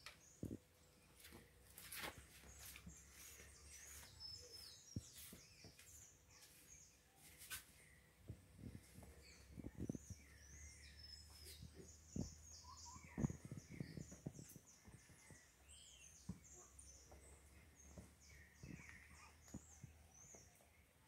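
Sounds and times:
small birds twittering: 0.0 - 21.0.

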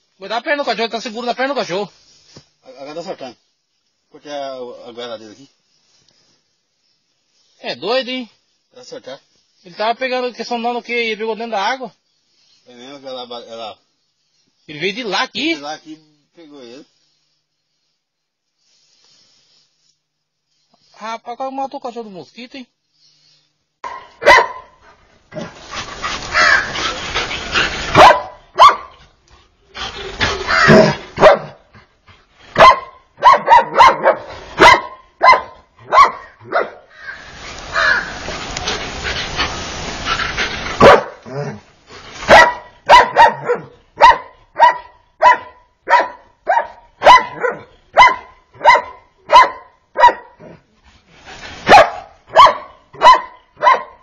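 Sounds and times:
dog barking: 23.8 - 24.8, 27.9 - 29.0, 30.4 - 31.6, 32.6 - 36.9, 40.8 - 41.5, 42.3 - 50.6, 51.6 - 54.0.

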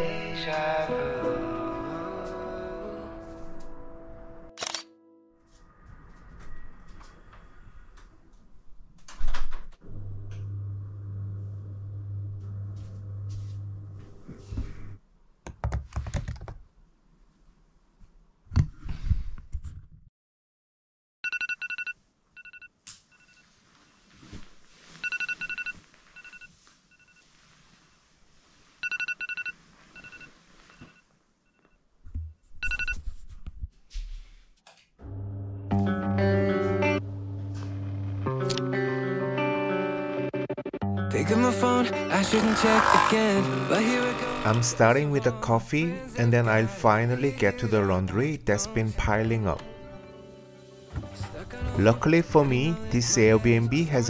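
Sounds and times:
low hum: 9.8 - 15.0, 35.0 - 38.4.

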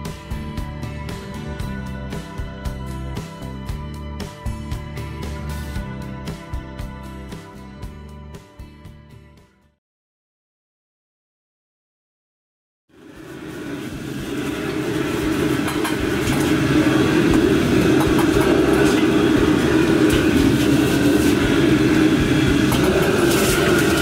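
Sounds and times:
gas flame roaring: 12.9 - 24.0.

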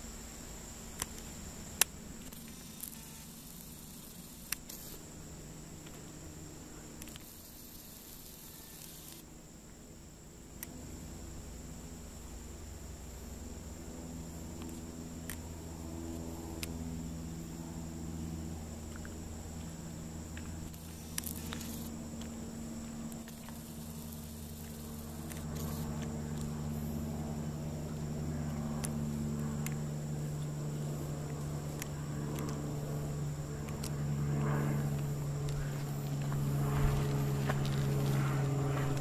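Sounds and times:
distant engine drone: 0.0 - 39.0
thin high buzz: 0.0 - 39.0
light clicks: 31.7 - 32.7.

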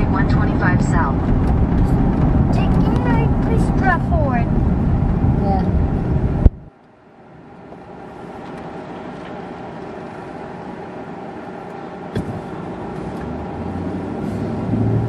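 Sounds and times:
road and engine noise inside car: 0.0 - 15.0.

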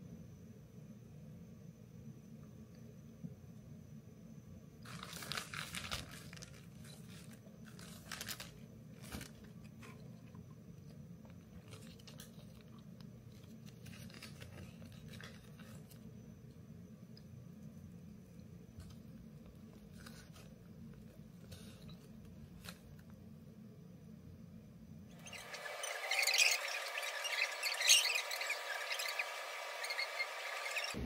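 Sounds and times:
low steady hum: 0.0 - 31.0
packaging crinkling: 4.8 - 9.6, 11.6 - 16.0.

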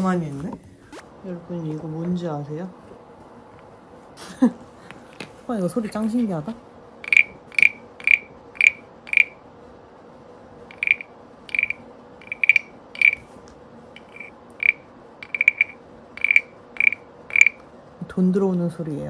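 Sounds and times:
wooden frog rasp croaking: 7.0 - 9.4, 10.7 - 13.3, 14.0 - 17.6.

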